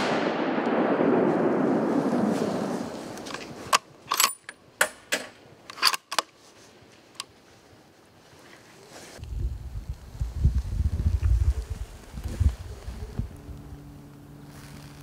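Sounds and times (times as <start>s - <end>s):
gunshot echo: 0.0s - 3.1s.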